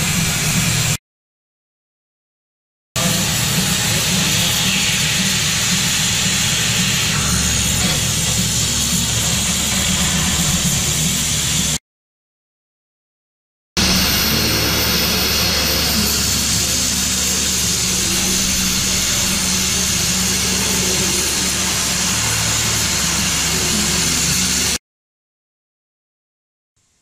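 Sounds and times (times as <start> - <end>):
cutting torch gas hiss: 3.0 - 11.8, 13.8 - 24.8.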